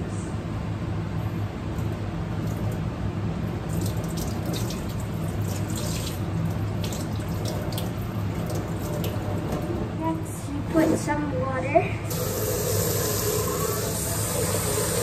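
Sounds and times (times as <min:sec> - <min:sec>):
water splashing into steel sink: 0:03.7 - 0:09.2.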